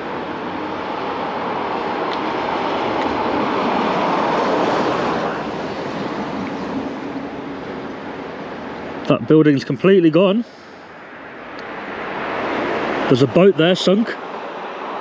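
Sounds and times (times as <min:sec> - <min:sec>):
vehicle passing on wet road: 0:00.0 - 0:09.0, 0:10.5 - 0:15.0.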